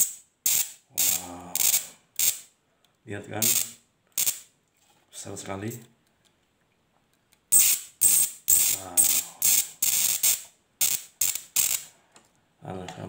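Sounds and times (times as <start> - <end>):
high-voltage arcs hissing: 0.0 - 2.5, 3.4 - 4.5, 7.5 - 11.9.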